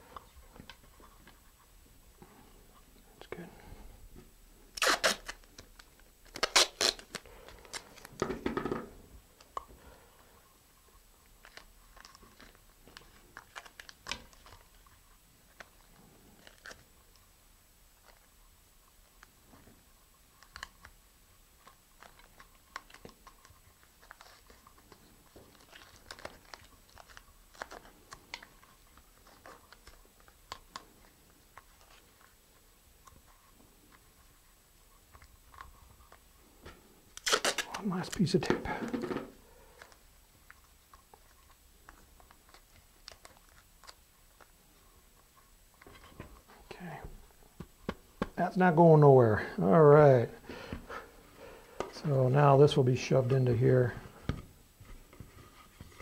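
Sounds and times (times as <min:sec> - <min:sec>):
masking tape ripping: 0:04.7 - 0:08.1, 0:37.2 - 0:38.4
tape crinkling: 0:04.7 - 0:08.2, 0:11.2 - 0:17.3, 0:21.6 - 0:46.8.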